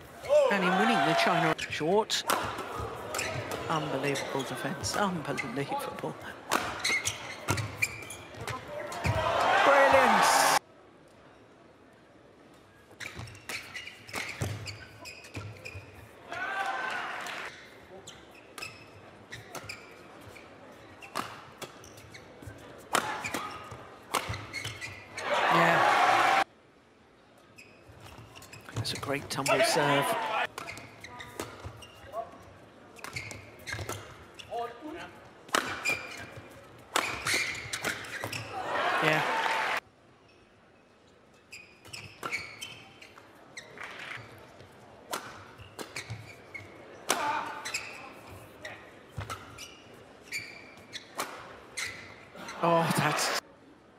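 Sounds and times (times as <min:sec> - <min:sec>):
shoes squeaking on a court mat: 0:00.0 - 0:09.2, 0:12.7 - 0:16.2, 0:17.5 - 0:25.3, 0:27.4 - 0:38.6, 0:40.2 - 0:52.6
racket hitting shuttlecock: 0:35.5 - 0:36.3, 0:36.9 - 0:38.4.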